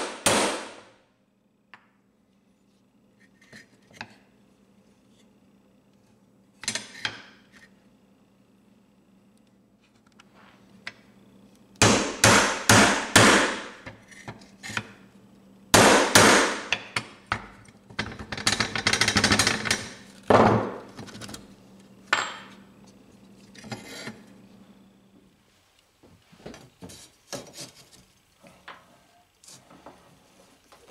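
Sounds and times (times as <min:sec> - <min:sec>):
hammer striking metal punch: 0:00.0 - 0:00.9, 0:11.8 - 0:13.8, 0:15.8 - 0:17.1.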